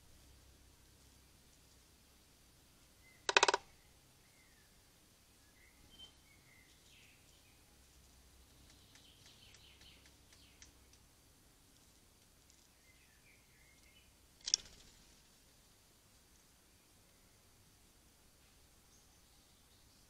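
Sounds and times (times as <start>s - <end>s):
small birds chirping: 0.0s - 20.0s
small clicks: 3.3s - 3.6s, 8.6s - 11.1s, 14.4s - 15.0s
wooden feeder knock: 3.3s - 3.6s.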